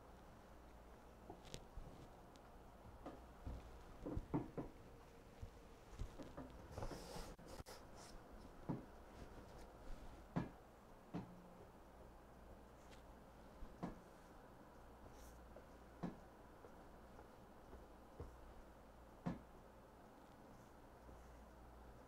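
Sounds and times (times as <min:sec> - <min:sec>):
canvas knocking and scraping: 0:02.9 - 0:04.7.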